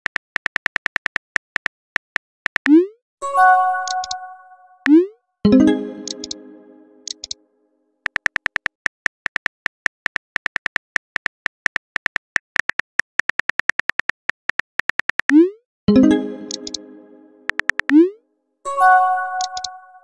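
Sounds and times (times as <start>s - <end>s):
phone keyboard key clicks: 8.1s - 15.3s.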